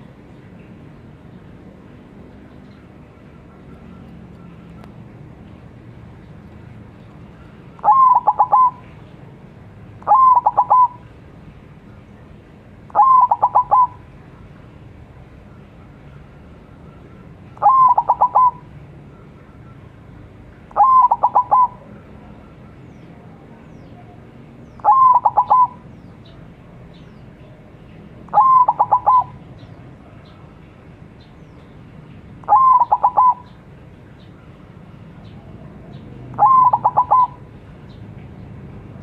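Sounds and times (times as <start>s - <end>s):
dove cooing song: 7.2s - 9.1s, 10.0s - 11.1s, 12.9s - 14.2s, 16.2s - 18.7s, 20.7s - 22.8s, 24.7s - 26.4s, 28.3s - 30.4s, 32.4s - 37.6s.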